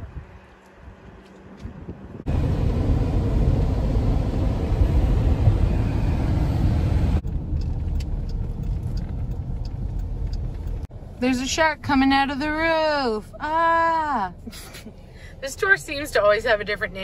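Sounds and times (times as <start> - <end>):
car cabin road rumble: 0.0 - 17.0.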